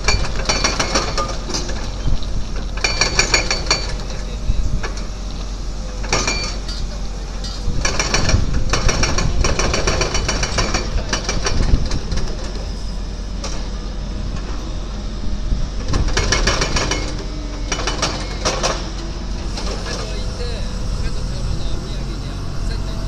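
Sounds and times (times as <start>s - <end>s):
mobile crane running: 0.0s - 23.0s
fast mechanical rattling: 7.6s - 12.6s, 15.9s - 21.2s.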